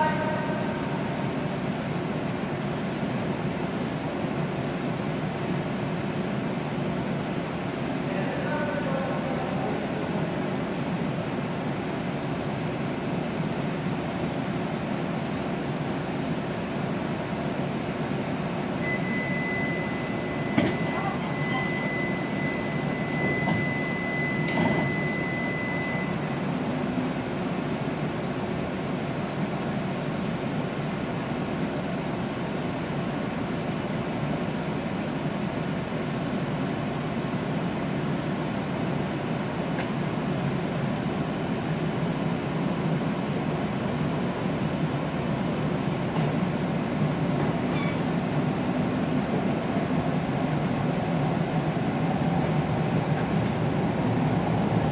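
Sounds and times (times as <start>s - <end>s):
train interior noise: 0.0s - 54.9s
high electronic beep: 18.8s - 26.2s.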